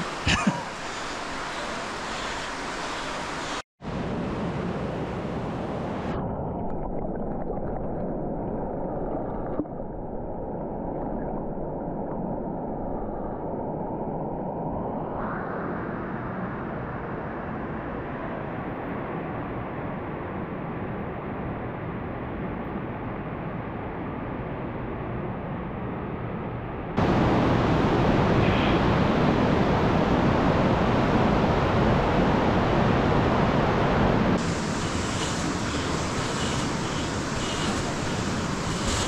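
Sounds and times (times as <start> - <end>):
mountain stream rushing: 0.0 - 6.2, 27.0 - 39.0.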